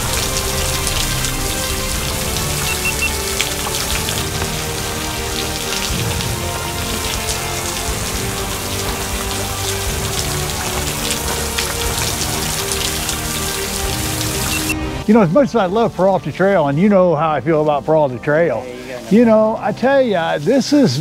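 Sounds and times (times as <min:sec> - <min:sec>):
waterfall spattering on rock: 0:00.0 - 0:14.8
soft background music: 0:00.0 - 0:21.0.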